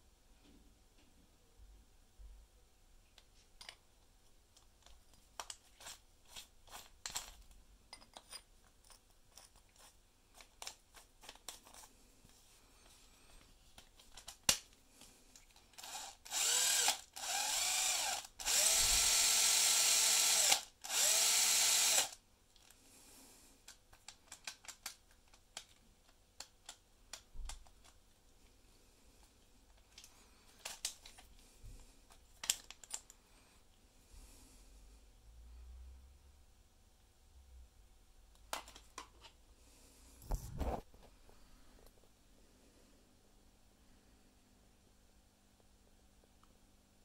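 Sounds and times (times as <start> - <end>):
cordless drill motor whine: 15.8 - 22.2
drill chuck clicks: 15.8 - 22.2.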